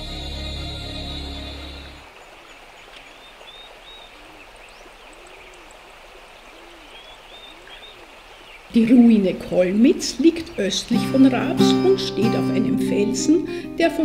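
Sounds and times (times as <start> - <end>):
background music: 0.0 - 2.0, 10.9 - 14.0
flowing water rushing: 1.2 - 12.0.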